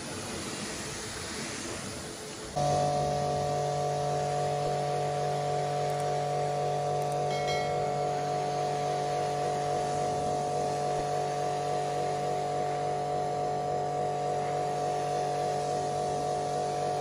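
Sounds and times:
pressure washer motor humming: 0.0s - 17.0s
water jet hissing: 0.0s - 17.0s.

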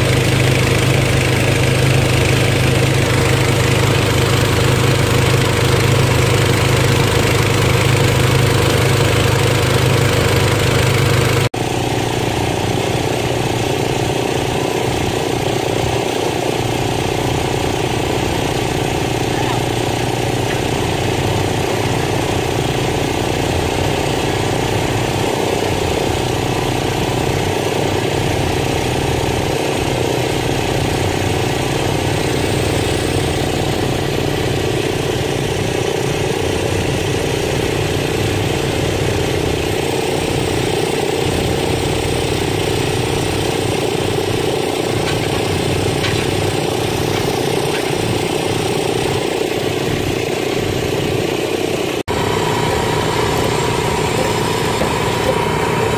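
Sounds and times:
engine running steadily: 0.0s - 55.9s
post driver pounding: 42.9s - 49.6s, 52.1s - 55.9s.

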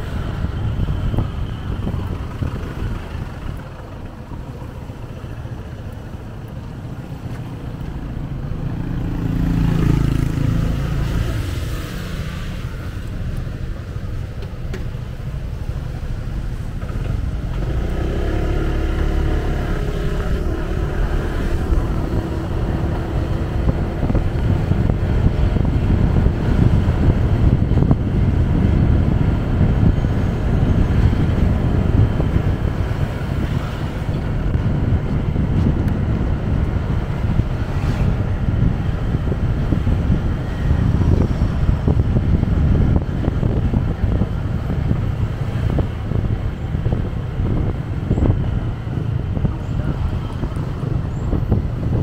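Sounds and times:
road traffic: 0.0s - 52.0s
wind on microphone: 0.0s - 52.0s
motorcycle engine accelerating: 7.9s - 13.1s, 16.7s - 52.0s.

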